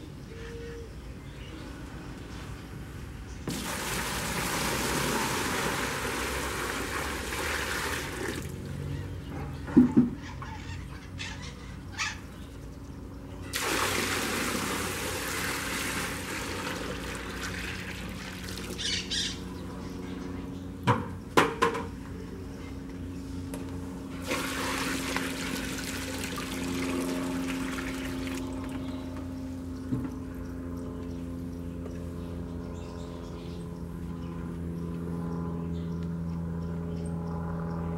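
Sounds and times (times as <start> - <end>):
steady low hum: 0.0 - 37.9
water gushing into a tub: 3.5 - 8.6, 13.5 - 19.0, 24.2 - 28.7.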